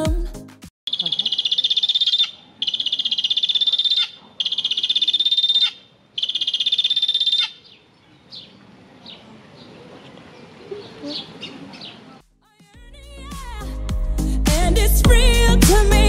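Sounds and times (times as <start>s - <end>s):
guineafowl rattling calls: 0.9s - 8.5s.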